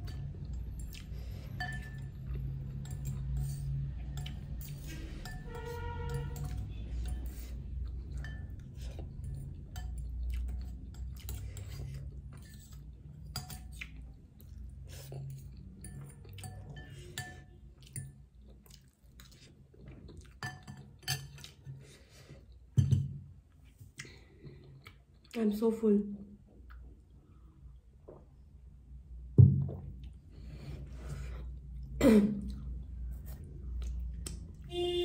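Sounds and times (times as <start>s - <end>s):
cutlery clinking on glass bowl: 0.0s - 7.4s, 8.1s - 11.8s, 12.4s - 13.8s, 20.4s - 21.6s
chewing: 7.2s - 16.7s, 17.8s - 21.8s, 23.6s - 25.4s, 32.5s - 34.7s.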